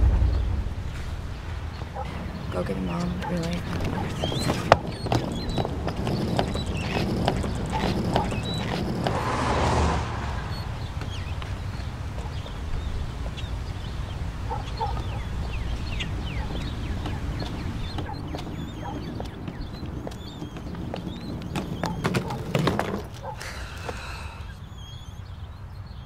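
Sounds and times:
rolling suitcase wheels rumbling: 0.0 - 25.0
street ambience: 0.0 - 26.0
high-heeled footsteps on sidewalk: 1.7 - 24.4
brief whoosh: 9.0 - 11.3.

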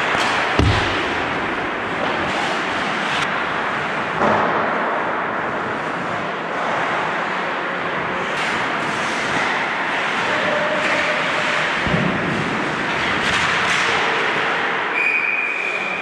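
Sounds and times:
low thump: 0.6 - 2.6.

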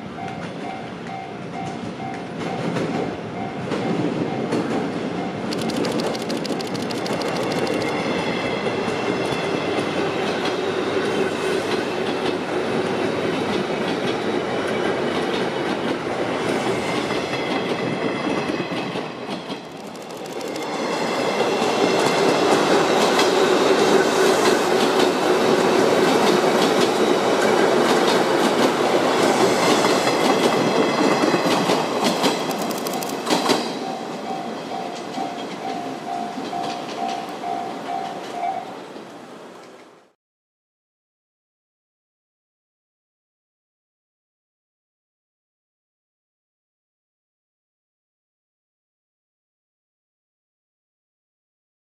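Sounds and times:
electric train running past: 0.0 - 40.1
level crossing warning bell: 33.1 - 38.8.

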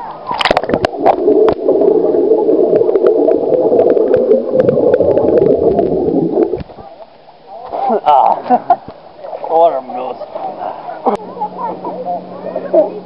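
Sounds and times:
underwater bubbling rush: 0.0 - 8.0
water splashing: 0.0 - 13.0.

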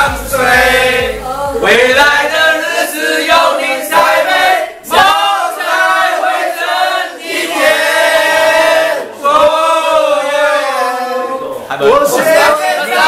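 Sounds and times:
men singing in unison: 0.0 - 13.0.

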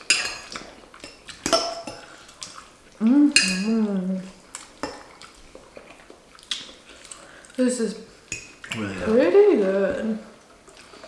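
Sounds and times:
person humming while eating: 3.0 - 4.4
forks clinking against bowls: 3.4 - 3.8.

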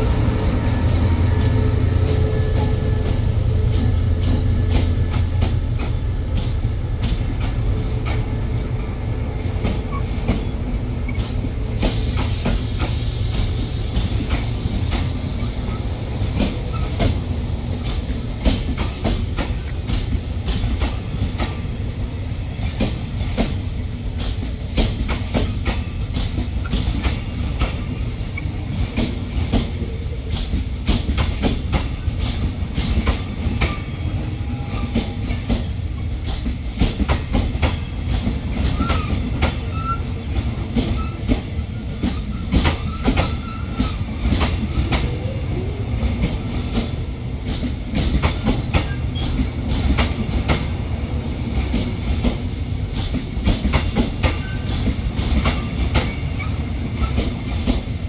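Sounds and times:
train low rumble: 0.0 - 58.0
wheels clacking over rail joints: 22.5 - 45.2, 46.0 - 50.8.

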